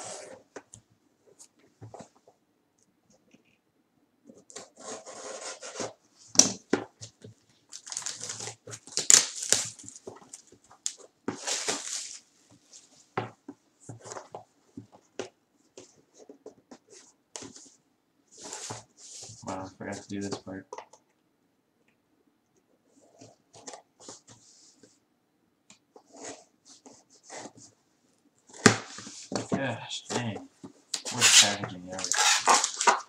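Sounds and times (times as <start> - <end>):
plastic wrap crinkling and tearing: 7.7 - 12.2, 31.0 - 33.0.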